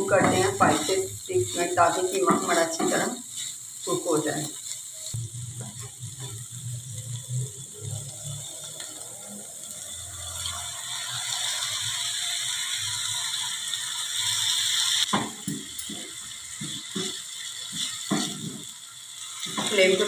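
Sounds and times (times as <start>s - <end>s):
wooden spatula scraping pan: 0.0s - 4.7s, 15.8s - 18.7s
meat sizzling in a pan: 0.0s - 20.0s.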